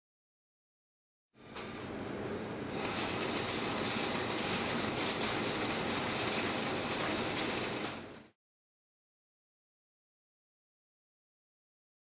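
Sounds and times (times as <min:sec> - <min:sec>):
lathe cutting steel: 0:02.7 - 0:08.2.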